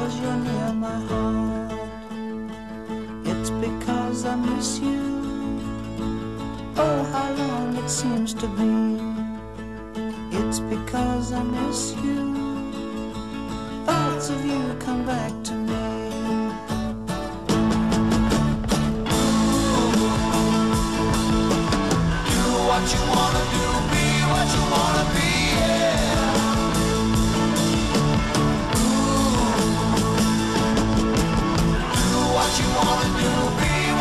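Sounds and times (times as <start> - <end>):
person singing: 0.0 - 2.3, 3.3 - 5.8, 6.7 - 9.2, 19.1 - 34.0
rock song with guitar: 0.0 - 34.0.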